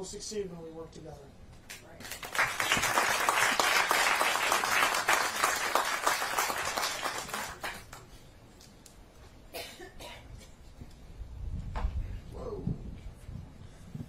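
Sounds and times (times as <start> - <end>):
audience applauding: 2.0 - 8.1.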